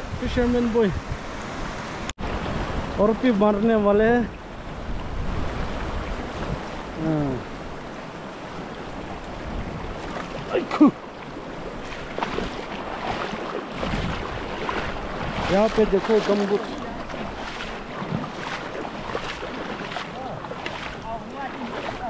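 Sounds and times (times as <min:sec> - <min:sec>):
river water rushing over rocks: 0:06.6 - 0:22.0
person calling out: 0:07.0 - 0:07.5, 0:10.4 - 0:11.0.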